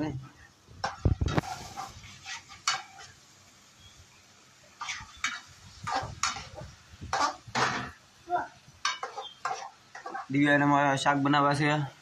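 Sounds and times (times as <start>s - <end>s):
spoon stirring dry beans in a pan: 0.8s - 4.0s, 4.7s - 8.0s, 8.7s - 10.7s.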